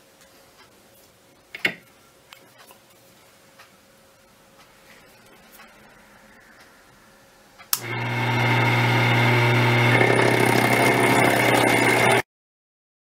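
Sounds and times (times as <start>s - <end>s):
switch click: 7.6s - 7.9s
milling machine motor humming: 7.7s - 12.2s.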